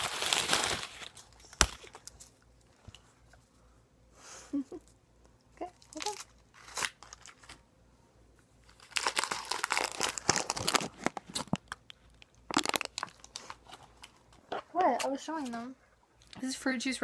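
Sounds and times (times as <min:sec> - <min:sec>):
lollipop wrapper crinkling: 0:05.8 - 0:07.6, 0:08.6 - 0:14.2.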